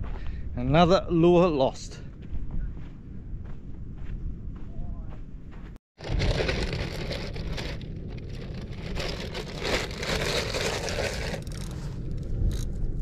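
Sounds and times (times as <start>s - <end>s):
gusty wind buffeting microphone: 0.0s - 13.0s.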